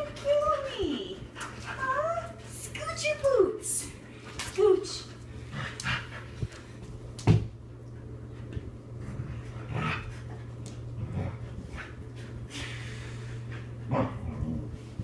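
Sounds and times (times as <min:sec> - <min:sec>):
dogs play-wrestling: 0:01.2 - 0:02.0, 0:08.0 - 0:12.6.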